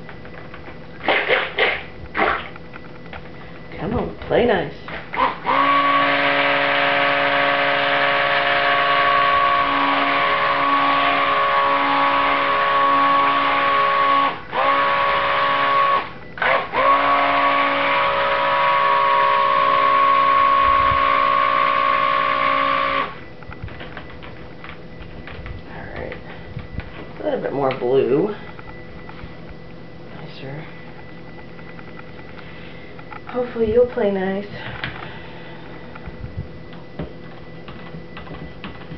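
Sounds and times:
stick blender motor whine: 0:04.9 - 0:23.2.

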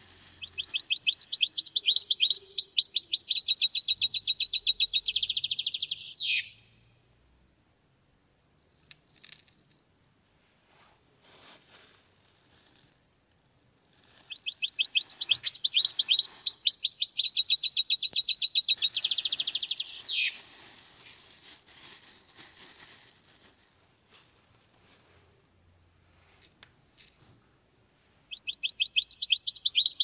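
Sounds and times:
songbird trilling: 0:00.4 - 0:06.6, 0:14.3 - 0:20.4, 0:28.3 - 0:30.0
faint rustling: 0:08.7 - 0:14.4, 0:18.8 - 0:27.5.

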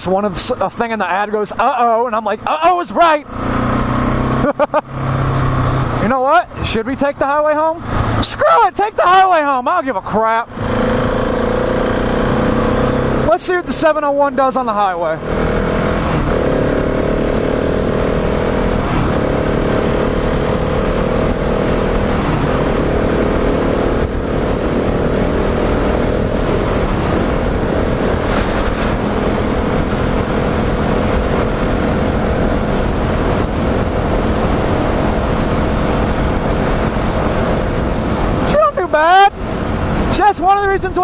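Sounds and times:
motorcycle engine accelerating: 0:01.1 - 0:40.2
wind rushing on helmet: 0:15.3 - 0:38.6.

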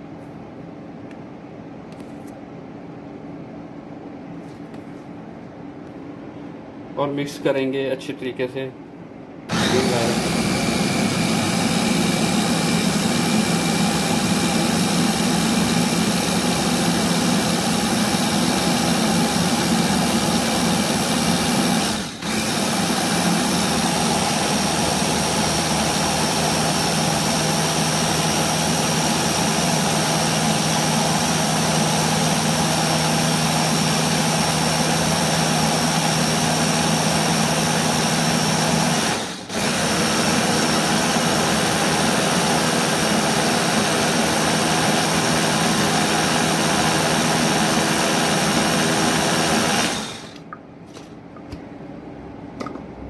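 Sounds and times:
blender motor running: 0:09.5 - 0:50.5.

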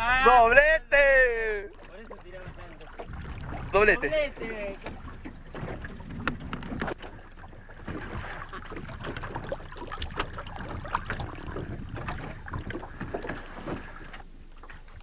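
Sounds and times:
water splashing against boat: 0:00.0 - 0:15.0
knocks on boat: 0:02.2 - 0:14.8.

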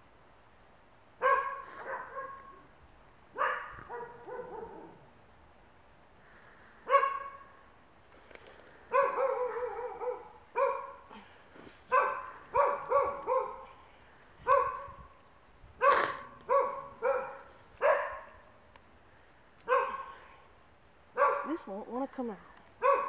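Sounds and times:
dog barking: 0:01.2 - 0:02.6, 0:03.4 - 0:05.0, 0:06.9 - 0:07.5, 0:08.9 - 0:11.1, 0:11.9 - 0:13.7, 0:14.4 - 0:15.0, 0:15.8 - 0:18.4, 0:19.7 - 0:20.2, 0:21.2 - 0:21.6, 0:22.8 - 0:23.0.

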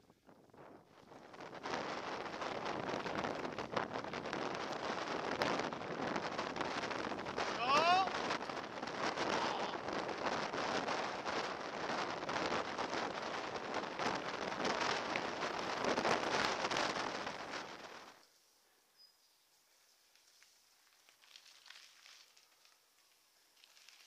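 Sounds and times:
wind buffeting microphone: 0:00.0 - 0:18.2.

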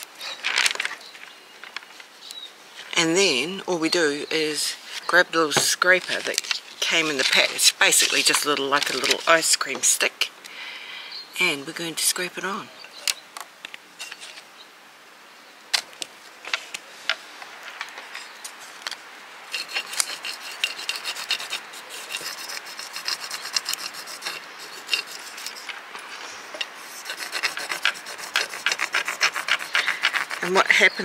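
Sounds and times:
taps and scratches: 0:18.9 - 0:30.6
stick scraping on pot: 0:19.5 - 0:31.0.

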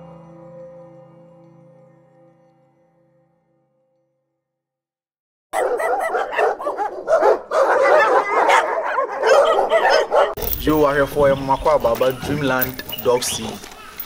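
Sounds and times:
dogs barking loudly: 0:05.5 - 0:10.4.

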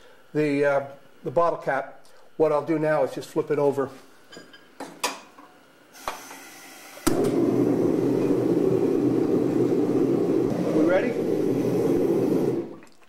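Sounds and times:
gas forge burner roaring: 0:06.0 - 0:12.8.

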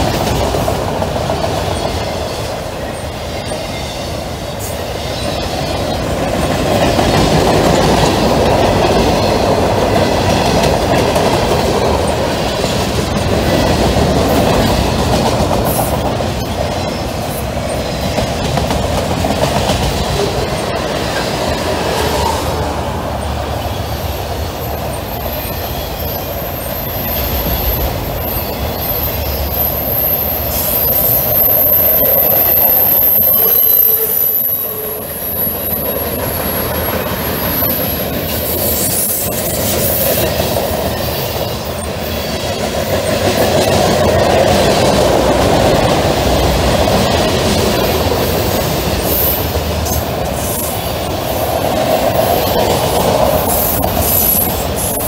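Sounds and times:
freight train wheels rumbling on rails: 0:00.0 - 0:55.0
high-pitched wheel squeal: 0:23.6 - 0:40.3.

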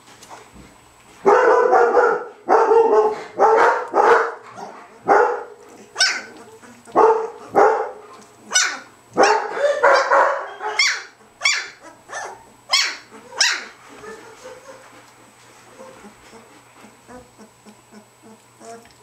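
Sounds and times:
dogs barking: 0:01.2 - 0:15.0.

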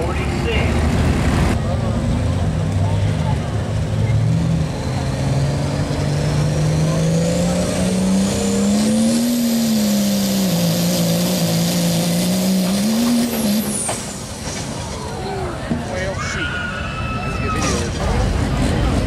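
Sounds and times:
diesel engine at full throttle: 0:00.0 - 0:16.3, 0:17.3 - 0:19.0.

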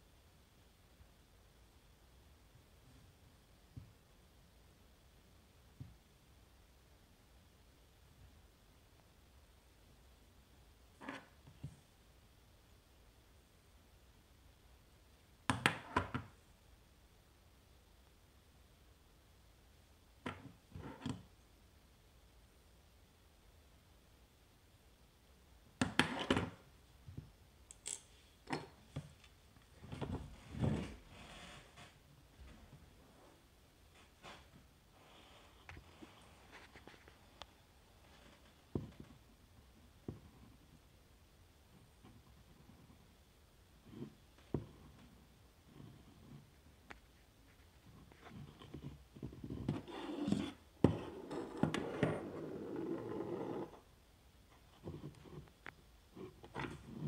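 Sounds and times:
scraping and rustling on workbench: 0:47.5 - 0:53.8.

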